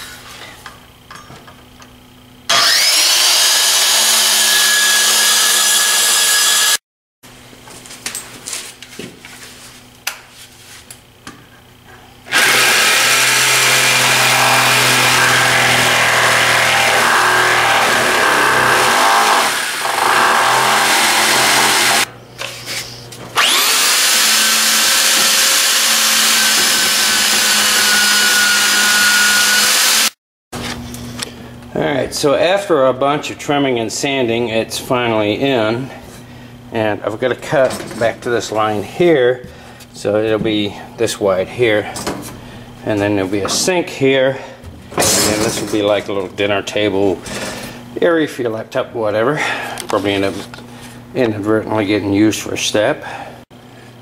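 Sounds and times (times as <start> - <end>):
electric sander: 2.5 - 6.8, 12.3 - 22.1, 23.4 - 30.2
jigsaw cutting wood: 2.5 - 6.8, 12.3 - 22.1, 23.4 - 30.2.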